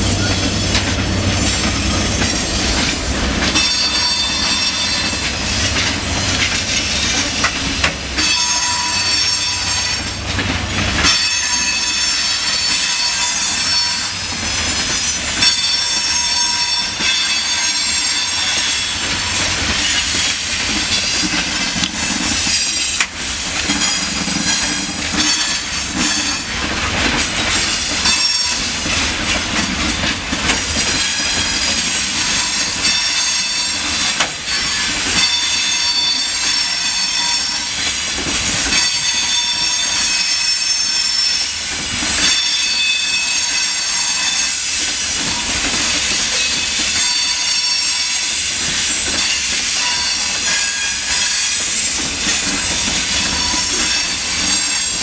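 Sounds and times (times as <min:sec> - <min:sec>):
train wheels squealing: 0:00.0 - 0:29.8, 0:30.4 - 0:55.0
train rumble and clatter over rail joints: 0:00.0 - 0:55.0.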